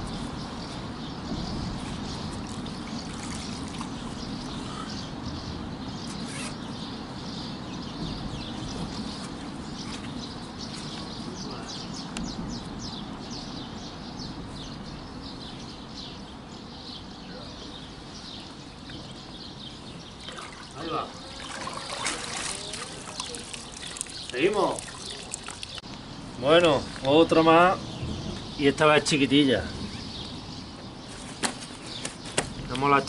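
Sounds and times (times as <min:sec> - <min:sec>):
small birds chirping: 0:00.0 - 0:33.0
river water sloshing and trickling: 0:01.9 - 0:04.6, 0:20.1 - 0:25.8.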